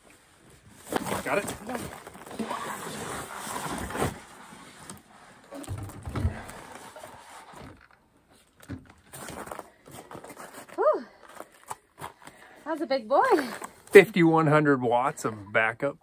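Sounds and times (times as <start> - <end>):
dull thumps and knocks: 5.6 - 6.6.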